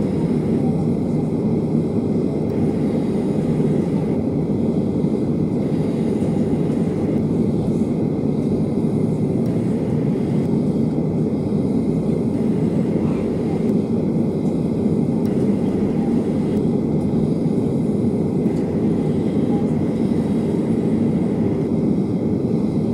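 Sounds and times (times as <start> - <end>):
jet engine cabin rumble: 0.0 - 22.9.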